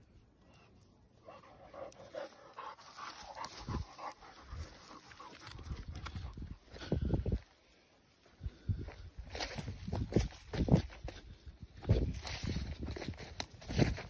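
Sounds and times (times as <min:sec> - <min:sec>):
dog panting: 0:01.2 - 0:05.8.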